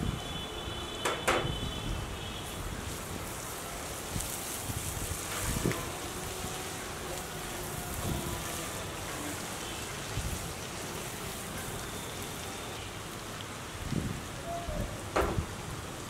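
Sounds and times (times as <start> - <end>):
food sizzling in a pan: 2.4 - 13.6
soft knocks: 15.1 - 15.5.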